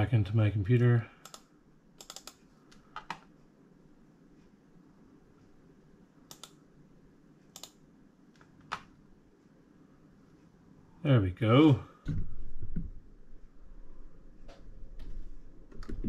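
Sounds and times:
computer mouse buttons clicking: 1.2 - 3.3, 6.3 - 6.6, 7.5 - 8.9.

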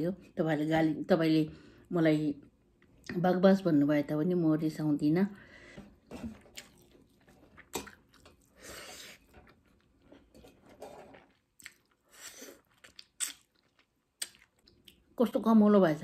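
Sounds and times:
person chewing food: 6.3 - 15.1.

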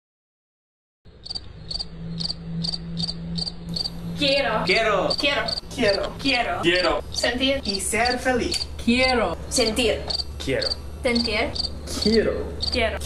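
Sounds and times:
cricket-like chirping: 1.1 - 13.0
steady low hum: 1.1 - 13.0
person speaking: 4.2 - 9.8, 10.4 - 13.0.

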